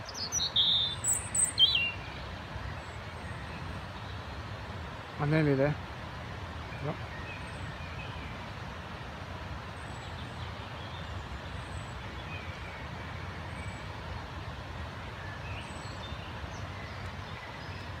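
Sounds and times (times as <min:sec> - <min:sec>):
robin singing: 0:00.0 - 0:04.3, 0:06.6 - 0:08.4.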